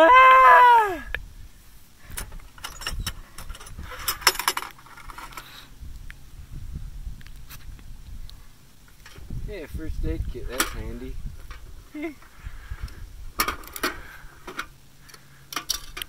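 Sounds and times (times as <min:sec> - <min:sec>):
groan rising and falling: 0:00.0 - 0:01.2
metal box clinking and rattling: 0:02.6 - 0:05.5.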